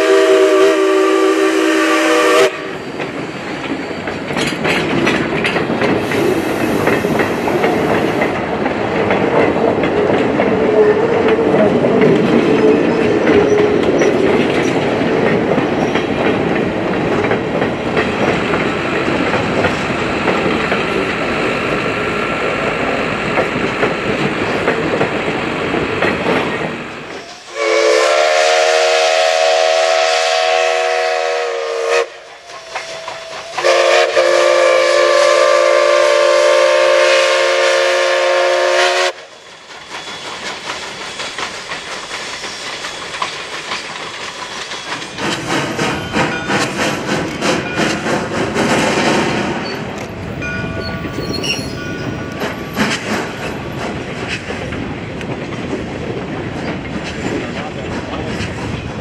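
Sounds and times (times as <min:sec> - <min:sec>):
steam locomotive chime whistle: 0:00.0 - 0:04.1, 0:27.1 - 0:43.2, 0:44.0 - 0:45.2, 0:49.7 - 0:52.7
train wheels clattering on rails: 0:00.0 - 0:59.0.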